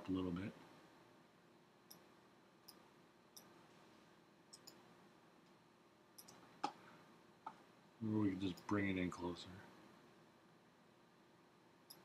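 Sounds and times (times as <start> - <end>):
computer mouse clicks: 4.5 - 4.8, 6.2 - 6.8.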